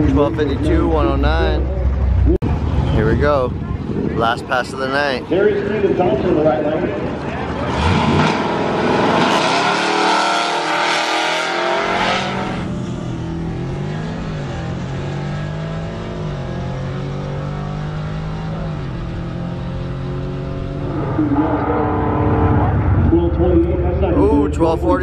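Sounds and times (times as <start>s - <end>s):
car engine at full throttle: 6.4s - 25.0s.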